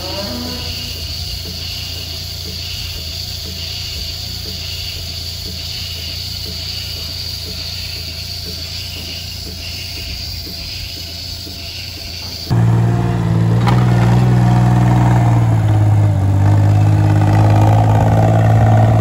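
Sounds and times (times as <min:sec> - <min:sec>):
milking machine pulsator ticking: 0:00.0 - 0:12.5.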